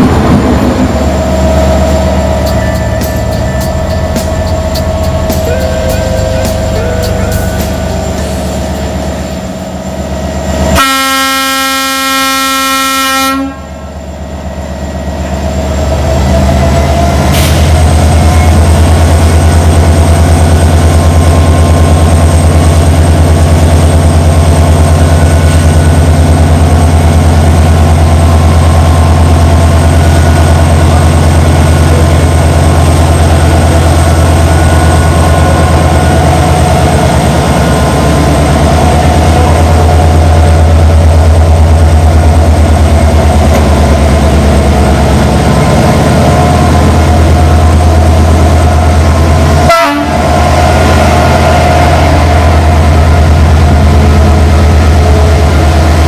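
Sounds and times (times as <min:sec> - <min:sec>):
locomotive running drone: 0:00.0 - 0:56.0
locomotive horn blast: 0:10.6 - 0:13.8, 0:49.6 - 0:52.6.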